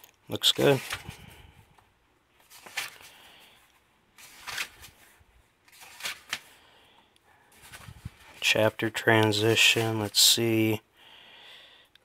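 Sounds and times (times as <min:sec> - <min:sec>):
book pages rustling and flicking: 0:00.4 - 0:01.4, 0:02.3 - 0:06.7, 0:07.5 - 0:08.6.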